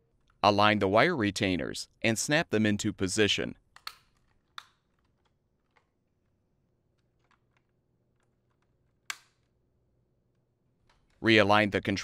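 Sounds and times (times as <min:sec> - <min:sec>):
plastic retainers clicking: 0:03.7 - 0:06.0, 0:06.9 - 0:09.6.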